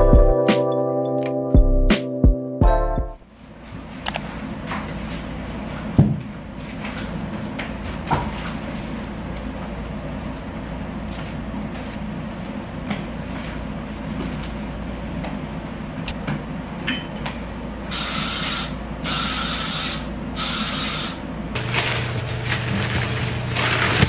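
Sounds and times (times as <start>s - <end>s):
plastic bag crinkling: 21.6s - 24.0s.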